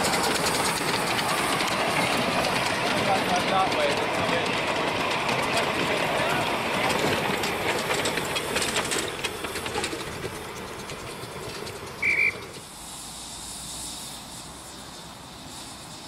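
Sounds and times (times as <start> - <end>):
steady steam hiss: 0.0 - 16.0
train wheels clicking over rail joints: 0.0 - 16.0
short high steam whistle: 12.0 - 12.6.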